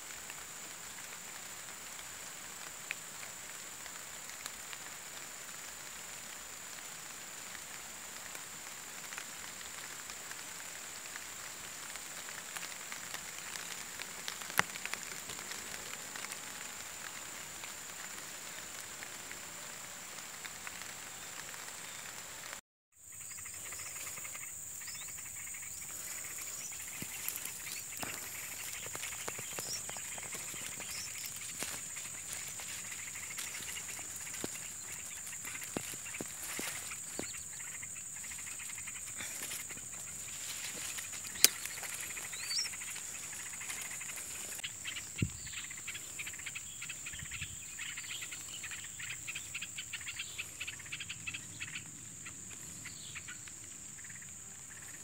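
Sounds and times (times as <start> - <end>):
grass and leaves rustling: 0.0 - 55.0
high-pitched insect chirring: 23.0 - 51.8.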